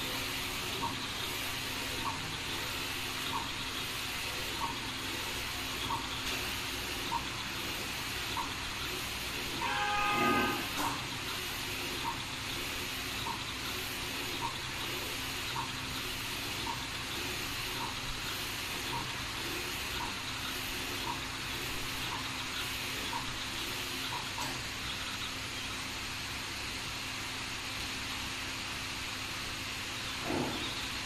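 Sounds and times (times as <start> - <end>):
short horn-like toot: 9.6 - 11.0.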